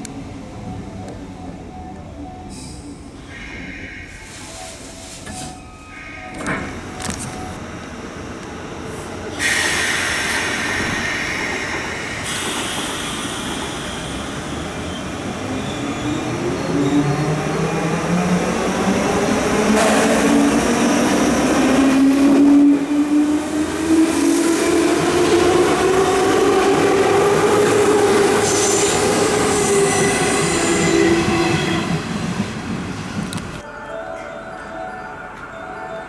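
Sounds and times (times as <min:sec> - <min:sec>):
electric train on rails: 0:00.0 - 0:36.0
train brakes hissing and squealing: 0:02.5 - 0:06.4, 0:09.3 - 0:17.1, 0:27.6 - 0:31.9.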